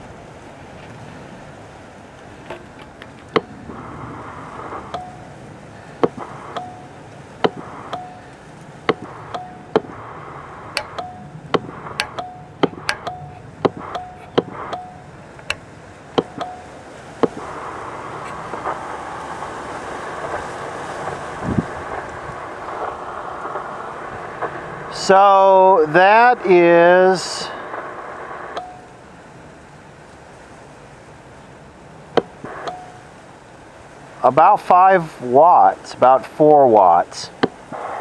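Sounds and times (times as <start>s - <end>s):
steady radio hiss: 0.0s - 38.0s
brief steady tone: 4.9s - 5.3s, 6.0s - 10.0s, 10.7s - 15.6s, 16.2s - 17.5s, 27.5s - 29.0s, 32.2s - 33.1s.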